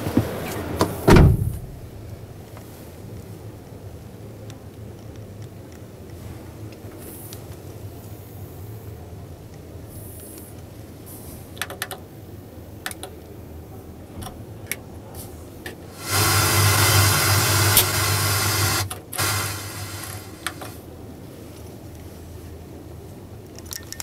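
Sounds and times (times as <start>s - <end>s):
plastic clicks of dashboard controls: 11.6s - 12.0s, 12.8s - 13.2s
whirring rush with low hum: 12.2s - 23.4s.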